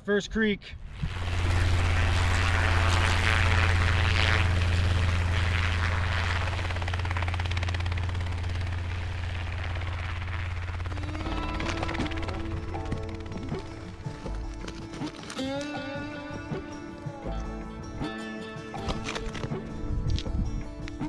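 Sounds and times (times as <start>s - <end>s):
helicopter engine drone: 0.8s - 15.4s
helicopter rotor chopping: 0.8s - 15.5s.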